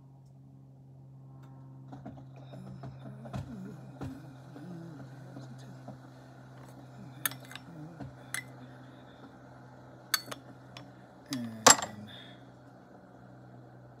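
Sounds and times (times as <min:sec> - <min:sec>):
teaware clinking: 0:07.2 - 0:07.7, 0:08.3 - 0:08.6, 0:10.2 - 0:10.8, 0:11.4 - 0:12.1.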